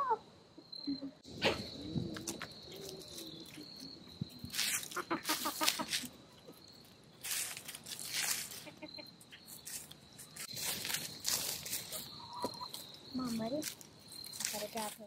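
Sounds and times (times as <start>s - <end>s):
high insect trill: 0.0s - 15.0s
scratching in wood-chip litter: 4.4s - 6.2s, 7.2s - 15.0s
hens clucking: 4.6s - 6.6s, 8.2s - 9.4s, 11.8s - 13.4s.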